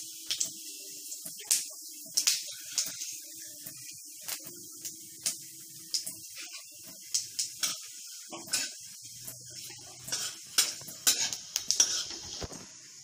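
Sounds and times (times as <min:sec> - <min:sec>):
seeds sizzling in hot oil: 0:00.0 - 0:13.0
metal spatula in pan: 0:07.6 - 0:12.6.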